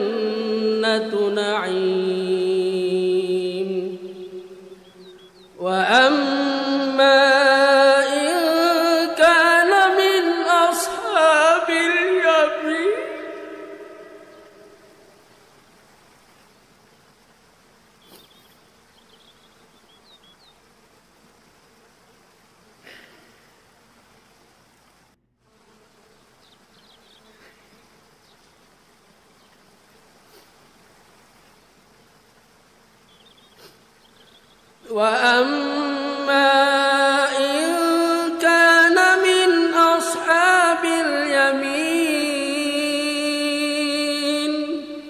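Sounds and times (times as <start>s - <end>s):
man chanting melodically: 0.0s - 4.8s, 5.6s - 14.7s, 34.8s - 45.0s
faint hiss: 0.0s - 45.0s.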